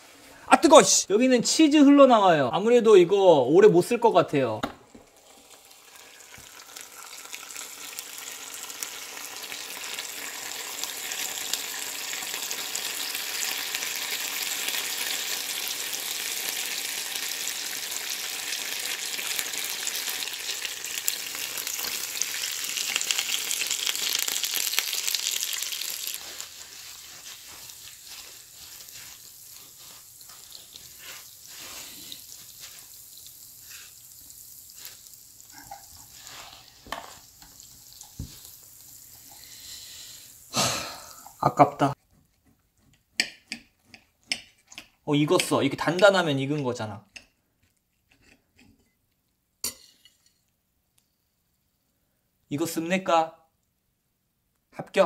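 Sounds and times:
patty sizzling on hot plates: 0:04.9 - 0:42.0, 0:43.2 - 0:46.8.

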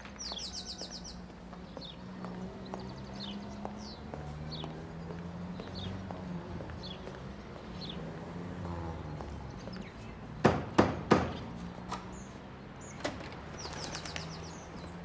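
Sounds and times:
birds chirping: 0:00.0 - 0:15.0
knocks on wooden door: 0:10.4 - 0:11.4.

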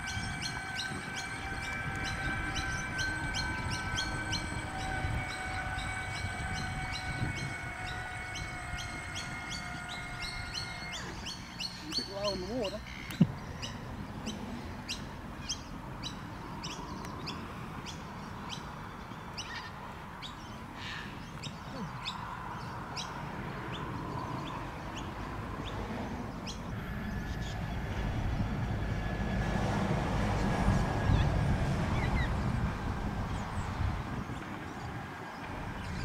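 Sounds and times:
bird chirping: 0:00.0 - 0:25.1.

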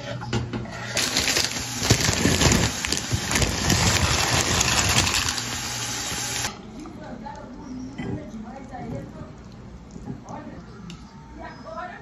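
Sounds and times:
food sizzling in frying pan: 0:00.9 - 0:06.5.

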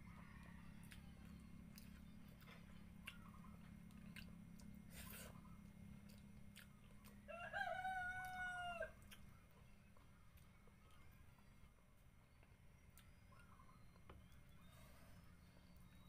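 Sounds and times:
rooster crowing: 0:00.0 - 0:01.4, 0:07.2 - 0:09.0
faint eating clicks: 0:00.0 - 0:14.8.

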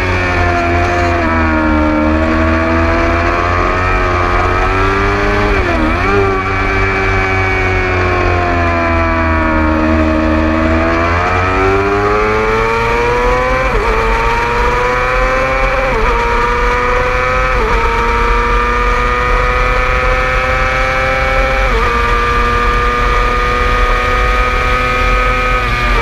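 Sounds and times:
sport bike engine revving: 0:00.0 - 0:26.0.

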